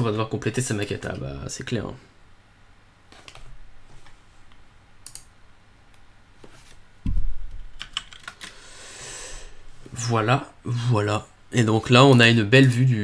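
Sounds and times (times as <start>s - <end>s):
low thud: 7.0s - 7.7s
computer keyboard typing: 7.7s - 8.6s.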